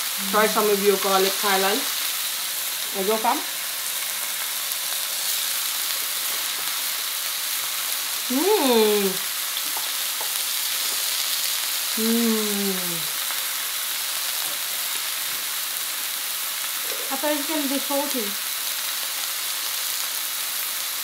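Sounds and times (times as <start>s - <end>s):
steaks sizzling on grill pan: 0.0s - 21.0s
person humming: 8.3s - 9.8s, 12.0s - 13.2s.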